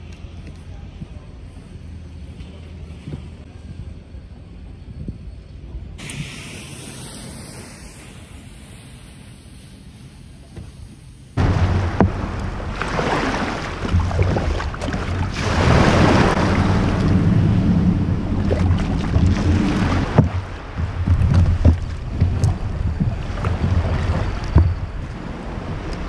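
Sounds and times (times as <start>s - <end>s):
kayak being bumped: 11.4s - 16.2s, 18.4s - 25.2s
small waves washing: 11.4s - 26.0s
wind buffeting microphone: 11.4s - 26.0s.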